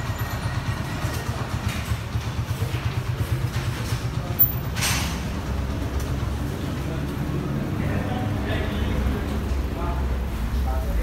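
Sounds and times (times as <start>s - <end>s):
motorcycle engine running: 0.0s - 8.7s.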